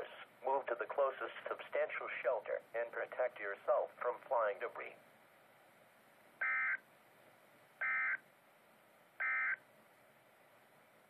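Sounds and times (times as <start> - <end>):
radio hiss: 0.0 - 5.0.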